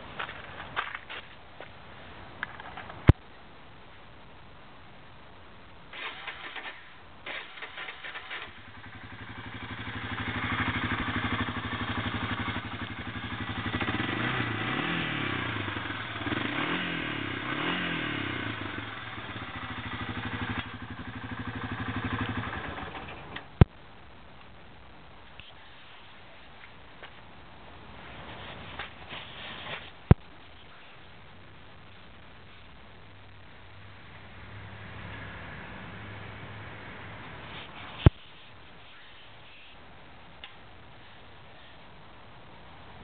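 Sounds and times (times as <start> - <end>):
engine cranking on starter: 6.0 - 8.8
atv engine running and revving: 8.6 - 23.1.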